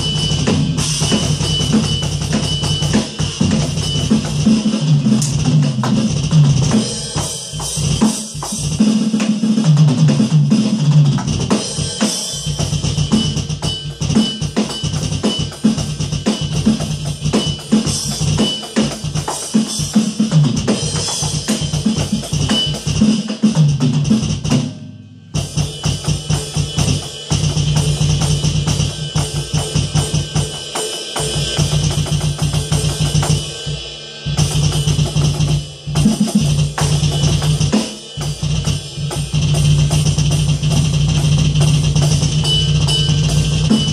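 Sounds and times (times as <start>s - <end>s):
electronic drum kit playing: 0.0s - 43.9s.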